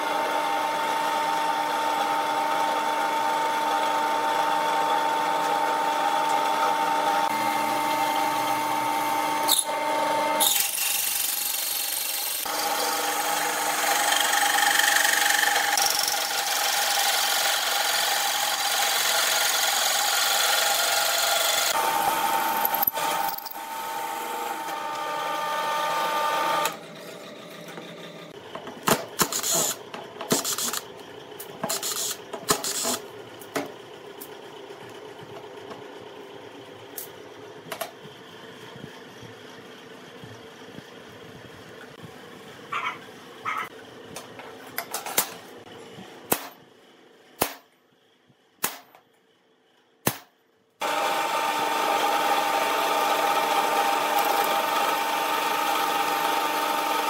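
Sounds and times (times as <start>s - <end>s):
drill press motor humming: 0.0s - 28.5s, 50.8s - 57.0s
cutter grinding into steel: 6.3s - 27.2s, 50.8s - 57.0s.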